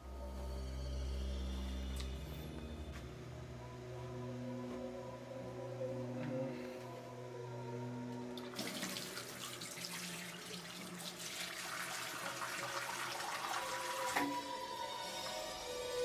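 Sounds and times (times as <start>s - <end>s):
tap water running into basin: 8.4s - 14.4s.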